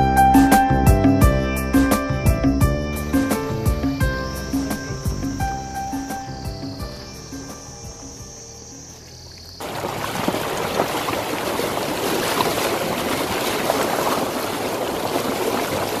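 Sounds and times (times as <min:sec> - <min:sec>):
soft music: 0:00.0 - 0:09.1
water rushing and splashing: 0:09.3 - 0:16.0.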